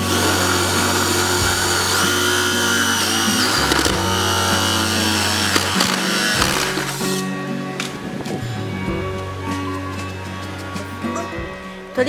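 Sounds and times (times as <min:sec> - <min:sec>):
cordless drill drilling wood: 0:00.0 - 0:07.2.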